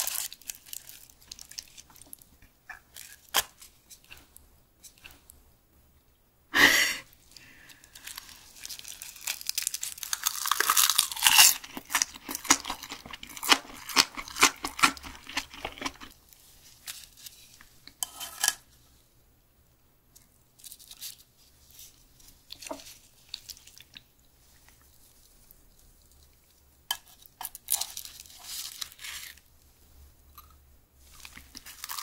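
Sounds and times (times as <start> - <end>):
seaweed sheets crinkling: 0.0 - 2.3, 7.3 - 17.6, 27.4 - 29.5, 31.0 - 32.0
crunchy chewing: 7.7 - 16.2, 30.3 - 32.0.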